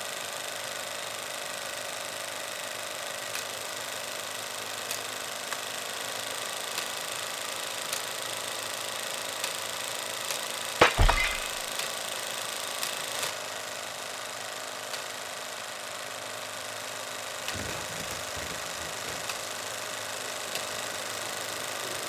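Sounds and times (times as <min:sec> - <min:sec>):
sharp crack with deep thump: 0:10.8 - 0:11.7.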